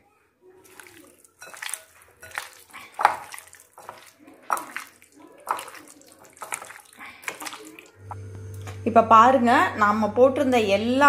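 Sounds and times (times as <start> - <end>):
hand squelching food in marinade: 0.5 - 8.0.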